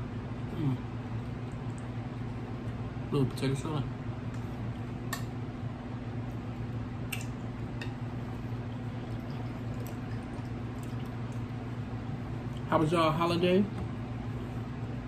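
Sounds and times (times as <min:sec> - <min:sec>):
steady low hum: 0:00.0 - 0:15.0
man chewing food: 0:07.1 - 0:11.7.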